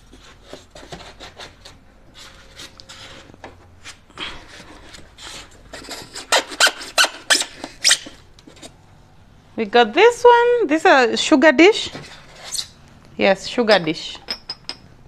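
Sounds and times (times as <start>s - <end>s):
foam packing squeaking and scraping: 4.5s - 8.2s.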